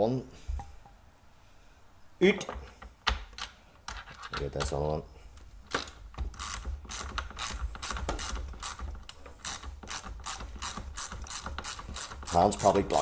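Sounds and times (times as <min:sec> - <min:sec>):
small ratchet clicking: 0:05.7 - 0:13.0.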